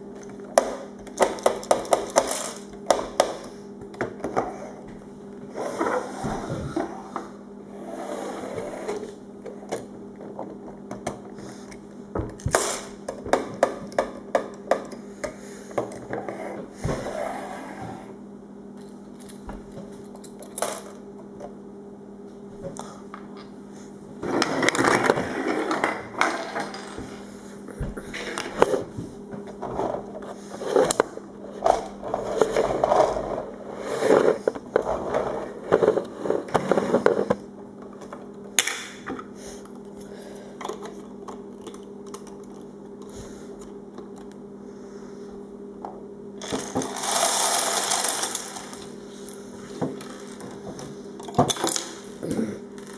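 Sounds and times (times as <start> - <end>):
toy wheels rolling on floor: 1.2 - 2.7, 29.7 - 37.4, 46.4 - 48.9.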